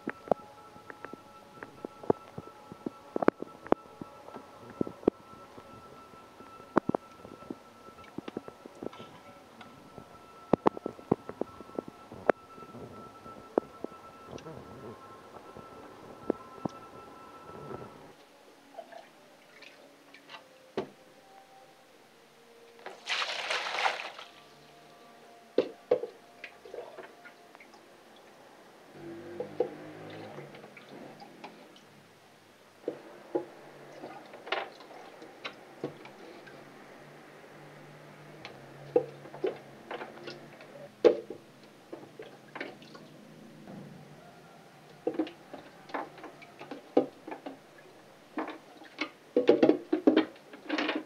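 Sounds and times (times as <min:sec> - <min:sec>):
faint low hum: 0:00.0 - 0:49.2
water sloshing and dripping: 0:22.8 - 0:24.6
loud water splash: 0:22.9 - 0:24.4.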